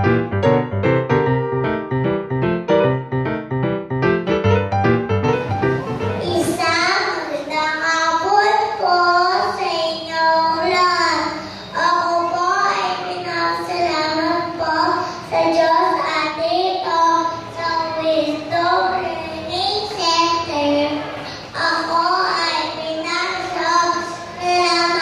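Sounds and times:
girl speaking through a pa system: 6.2s - 25.0s.

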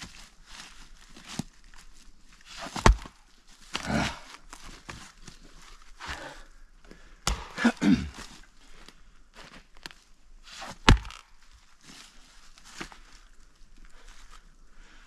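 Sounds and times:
axe striking a log: 2.6s - 3.2s, 7.2s - 8.0s, 10.6s - 11.3s.

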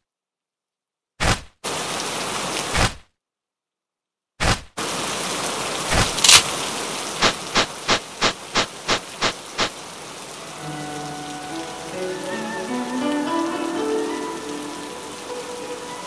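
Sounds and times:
rain hissing: 1.6s - 2.9s, 4.8s - 16.0s
sharp crack: 5.9s - 6.5s.

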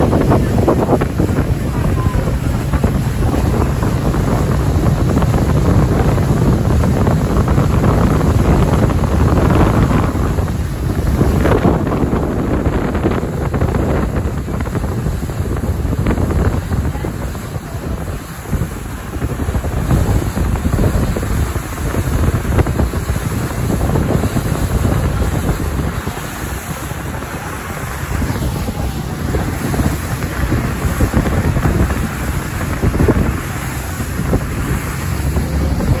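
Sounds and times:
sea water washing: 0.0s - 36.0s
wind buffeting microphone: 0.0s - 36.0s.

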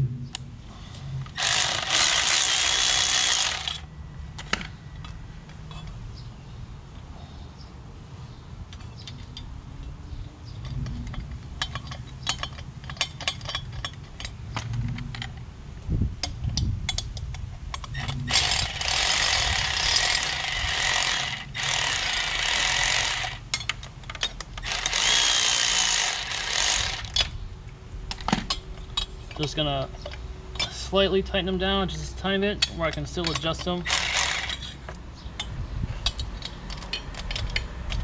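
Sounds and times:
cordless ratchet running: 1.3s - 3.9s, 18.0s - 23.5s, 24.6s - 27.3s, 33.8s - 34.8s
light metal clicks and knocks: 10.5s - 15.4s, 32.6s - 33.8s, 34.5s - 38.0s.

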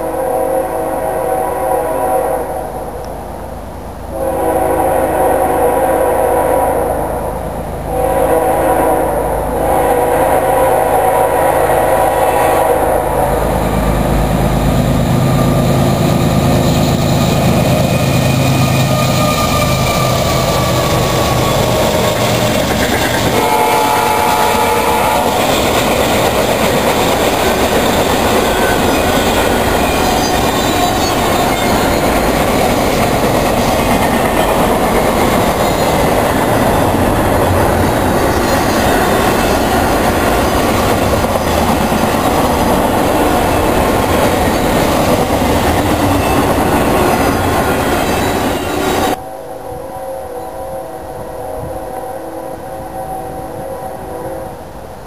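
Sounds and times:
train horn blasts: 0.0s - 2.9s, 4.1s - 14.0s, 18.0s - 33.3s, 34.0s - 54.9s
rolling clatter of freight cars: 13.2s - 49.2s.

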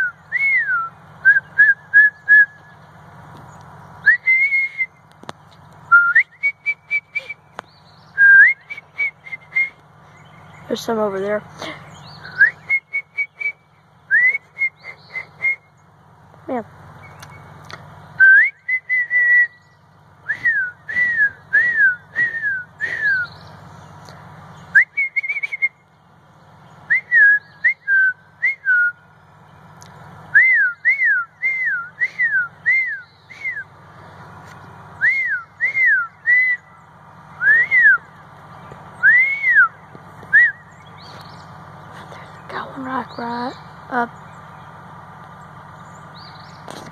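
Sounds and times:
person whistling bird call: 0.0s - 2.7s, 4.0s - 5.0s, 5.9s - 9.8s, 12.1s - 15.7s, 18.2s - 23.4s, 24.7s - 25.8s, 26.9s - 29.0s, 30.3s - 33.7s, 35.0s - 36.7s, 37.4s - 38.1s, 39.0s - 40.8s.

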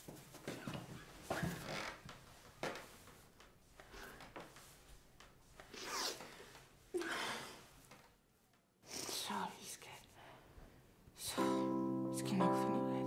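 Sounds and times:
clothing rustling: 0.0s - 8.7s.

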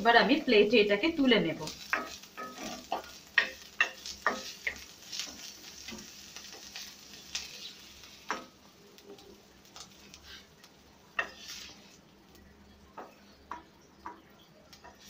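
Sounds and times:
soft sizzle: 0.0s - 15.0s
wooden spatula scraping metal pan: 1.7s - 8.5s, 11.2s - 12.0s.

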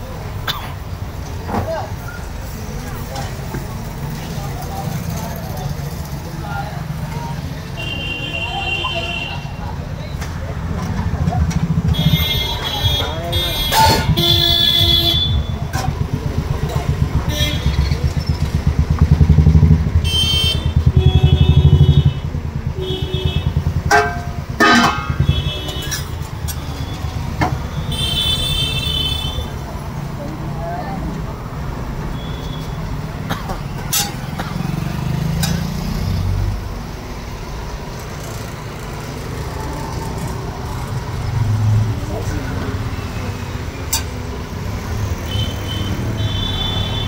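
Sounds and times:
motorcycle engine throbbing: 7.6s - 30.1s
vehicle horns honking: 7.7s - 9.8s, 11.7s - 16.0s, 16.6s - 18.3s, 19.2s - 29.6s, 32.1s - 35.6s, 44.9s - 47.0s.

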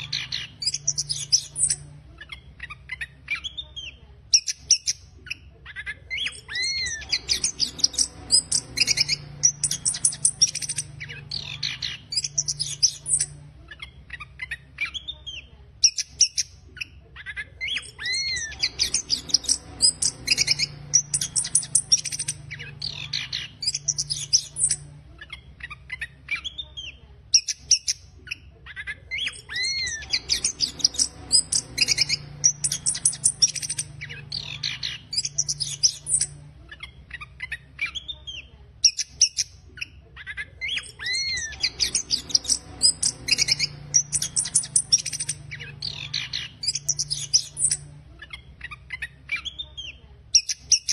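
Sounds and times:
thrush singing rapid twittering song: 0.0s - 50.9s.

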